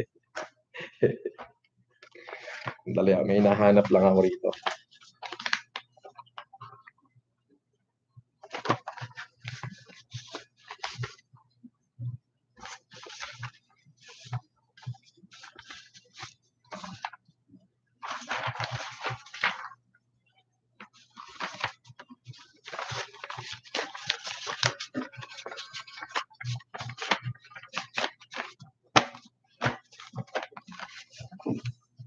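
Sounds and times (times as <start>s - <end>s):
paper rustling: 2.0s - 6.5s, 8.4s - 11.3s, 12.6s - 17.2s, 18.0s - 19.8s, 20.8s - 31.8s.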